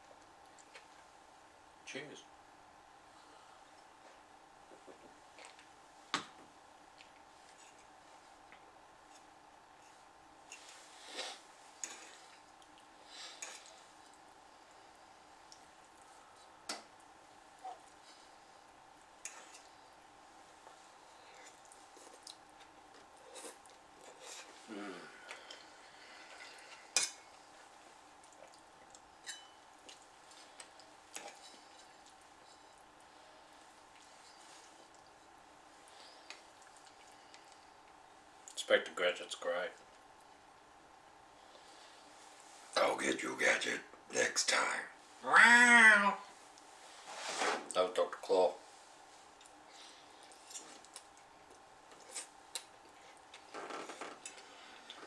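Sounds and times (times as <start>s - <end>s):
fork clinking on a plate: 29.2s - 29.6s.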